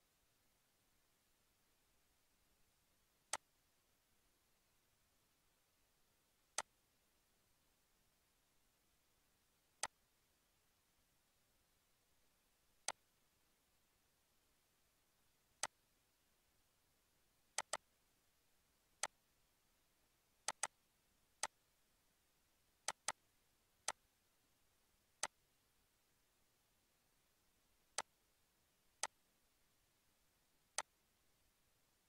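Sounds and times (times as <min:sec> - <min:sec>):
computer mouse clicking: 0:17.6 - 0:17.8, 0:20.5 - 0:20.8, 0:22.8 - 0:23.2.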